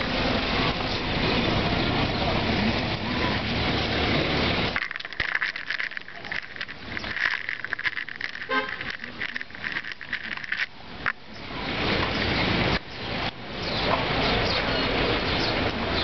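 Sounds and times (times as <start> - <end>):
city traffic noise: 0.0 - 16.0.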